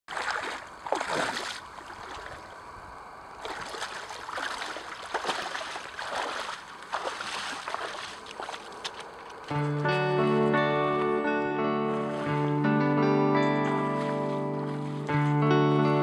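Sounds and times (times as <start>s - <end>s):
splashing steps in shallow water: 0.0s - 2.7s, 3.4s - 10.5s, 13.7s - 15.4s.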